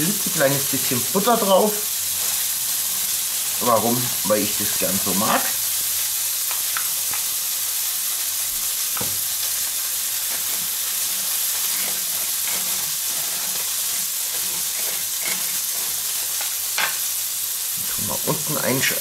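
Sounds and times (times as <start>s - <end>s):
meat patty sizzling in pan: 0.0s - 19.0s
knife scraping butter on muffin: 11.6s - 16.2s.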